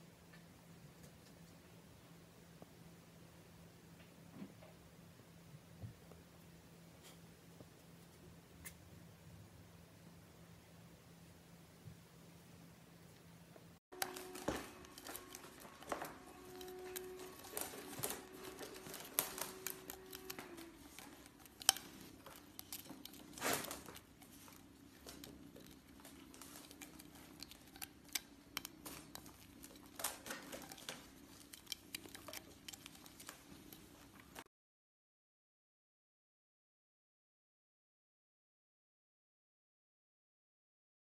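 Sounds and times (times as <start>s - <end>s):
kitten chewing plastic straw: 13.9s - 34.4s.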